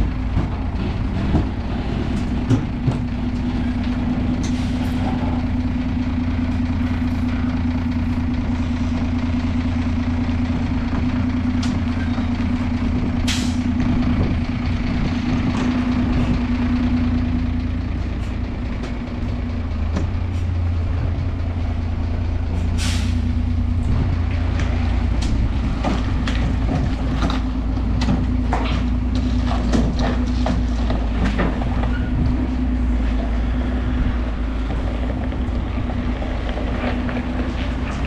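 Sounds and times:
diesel truck engine rumbling: 0.0 - 38.0
air brakes hiss: 13.3 - 13.7, 22.6 - 23.3.

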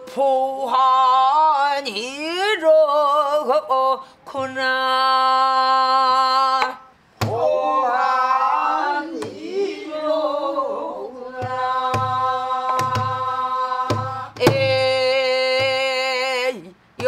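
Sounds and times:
woman singing long held notes: 0.0 - 16.8
barrel drum strikes and thumps: 11.4 - 14.9.

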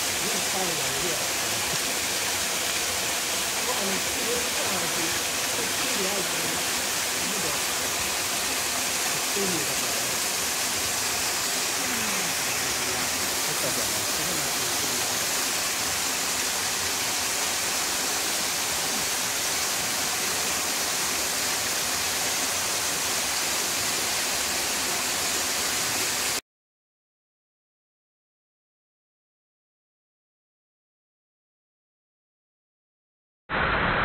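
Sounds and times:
waterfall rushing: 0.0 - 26.4.

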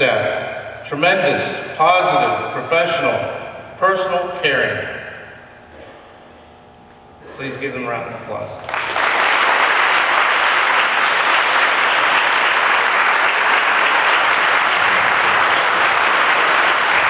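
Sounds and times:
audience applauding: 8.6 - 17.0.

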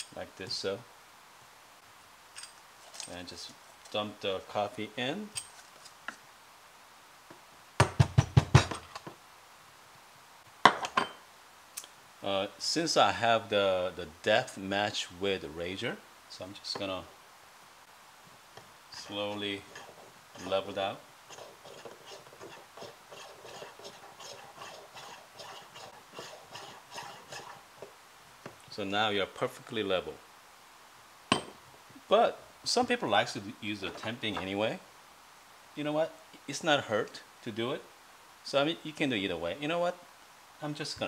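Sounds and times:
coffee distributor rubbing: 18.9 - 27.9.

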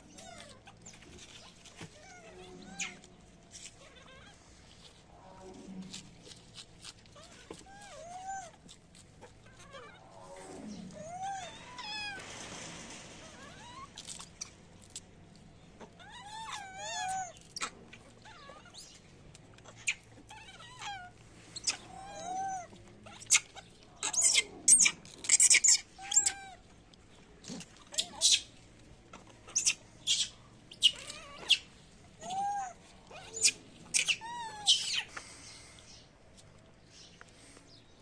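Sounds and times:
macaque coo calls: 20.6 - 26.6.

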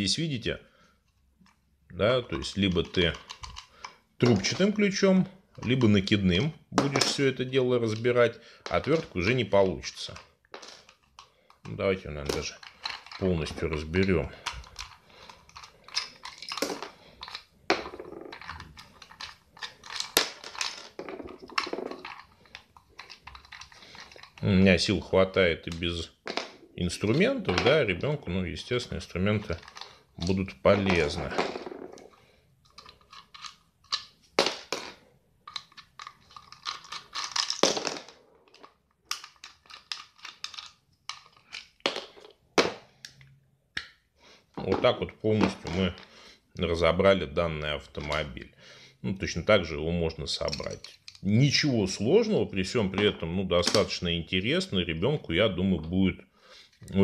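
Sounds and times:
plastic toy clicks and creaks: 2.3 - 4.9, 7.9 - 25.9, 28.8 - 34.2, 35.4 - 37.6, 38.4 - 43.9, 50.1 - 51.7.

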